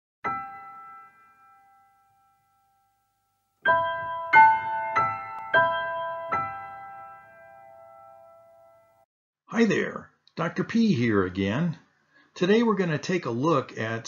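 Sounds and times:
keyboard jingle: 0:00.2 - 0:03.0, 0:03.6 - 0:09.0.

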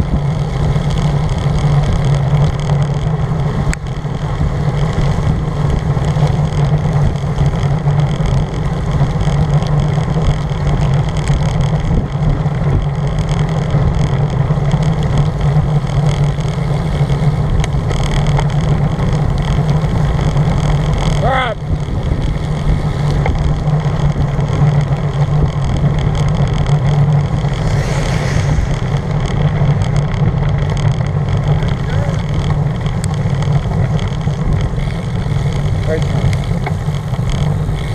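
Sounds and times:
wind rushing over microphone: 0:25.4 - 0:32.1
bicycle tyres hissing on wet road: 0:27.2 - 0:31.4, 0:32.9 - 0:37.9.

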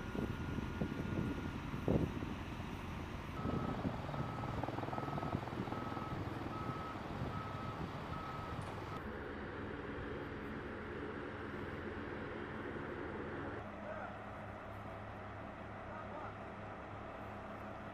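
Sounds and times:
truck reversing alarm beeping: 0:00.0 - 0:09.0
truck engine running: 0:00.0 - 0:09.1.

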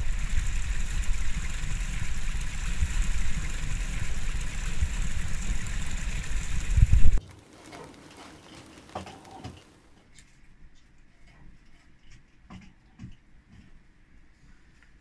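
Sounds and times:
wind rumbling on microphone: 0:00.0 - 0:07.2
steady hiss: 0:00.0 - 0:10.1.

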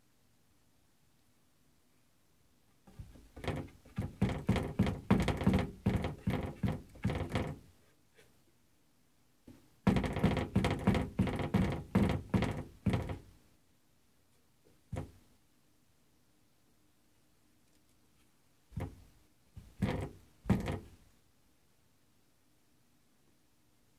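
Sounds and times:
cupboard door knocking and rattling: 0:02.9 - 0:07.7, 0:09.8 - 0:13.3, 0:14.9 - 0:15.2, 0:18.7 - 0:21.0.

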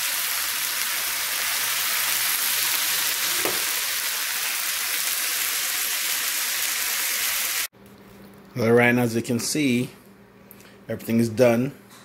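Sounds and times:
vegetables sizzling in a pan: 0:00.0 - 0:07.7.

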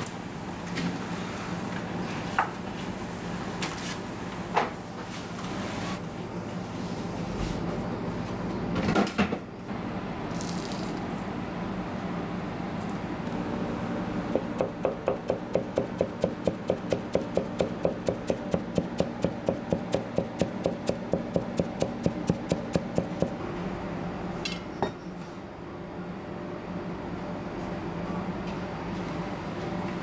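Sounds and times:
knife chopping on plastic board: 0:14.4 - 0:23.4.

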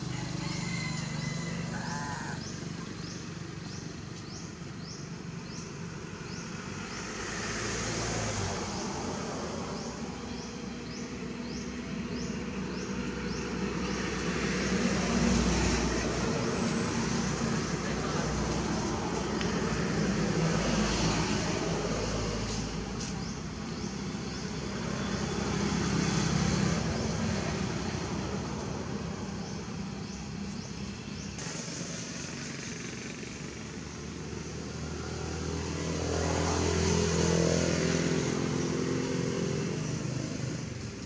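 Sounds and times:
vehicle engine rumble: 0:00.0 - 0:41.0.

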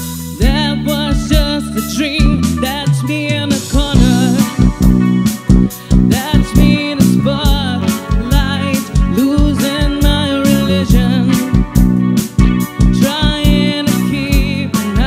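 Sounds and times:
electric bass: 0:00.0 - 0:15.0
electric guitar: 0:00.0 - 0:15.0
woman singing with vibrato: 0:00.4 - 0:04.9, 0:05.9 - 0:11.6, 0:12.9 - 0:15.0
kick drum beat: 0:03.9 - 0:06.8, 0:10.9 - 0:13.7.

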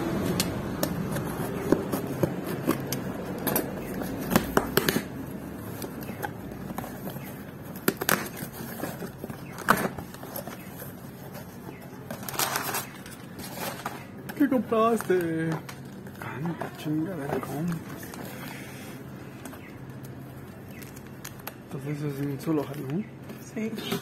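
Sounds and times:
knife slitting packing tape: 0:00.4 - 0:05.1
cardboard and paper crackling: 0:00.6 - 0:24.0.

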